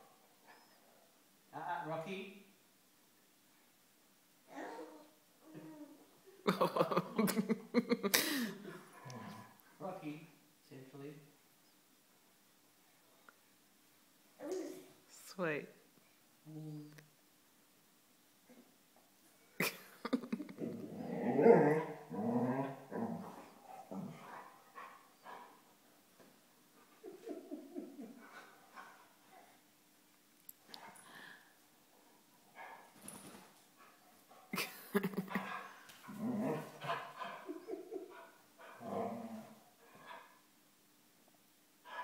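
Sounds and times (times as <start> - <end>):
dog growling and whining: 8.9 - 9.6, 20.5 - 24.4, 35.7 - 37.7, 38.7 - 39.6.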